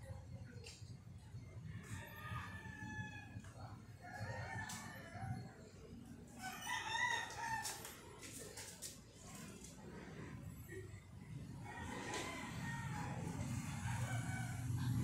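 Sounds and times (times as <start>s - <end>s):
rooster crowing: 6.4s - 8.0s, 11.6s - 14.9s.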